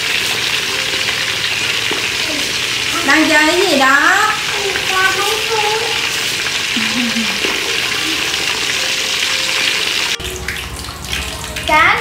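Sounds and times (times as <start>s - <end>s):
hot oil sizzling: 0.0s - 12.0s.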